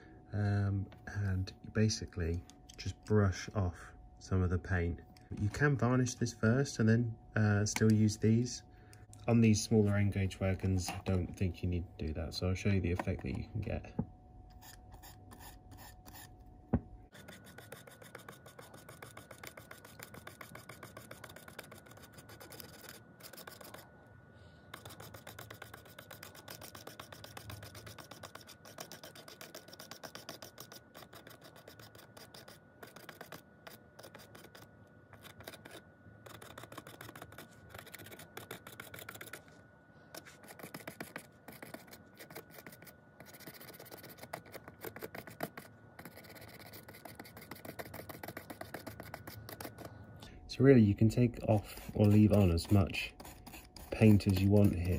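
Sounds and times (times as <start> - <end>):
pen scratching on plastic: 14.5 - 16.3, 17.1 - 23.8, 24.7 - 39.5, 40.1 - 49.9, 51.5 - 54.9.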